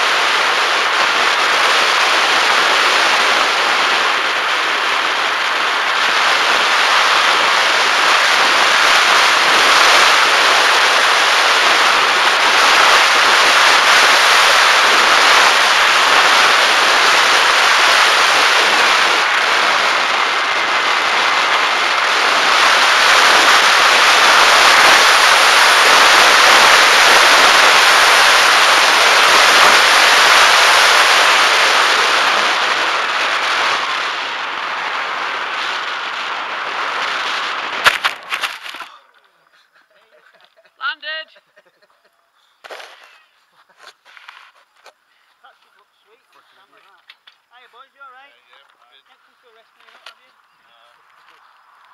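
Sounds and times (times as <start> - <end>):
wind rushing over camera: 0.0 - 39.2.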